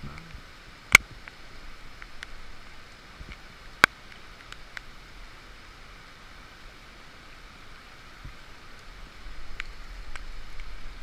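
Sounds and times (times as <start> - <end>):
faint ticks: 0.0 - 4.9, 9.5 - 10.8
heavy rain: 0.0 - 11.0
stream flowing: 0.0 - 11.0.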